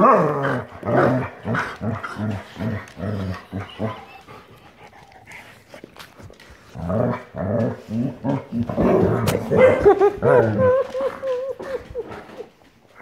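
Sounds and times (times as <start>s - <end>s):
dogs growling: 0.0s - 13.0s.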